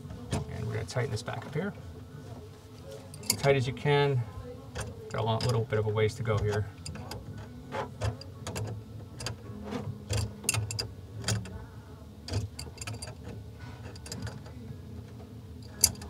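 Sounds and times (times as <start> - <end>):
wrench clicking on nut: 15.6 - 16.0.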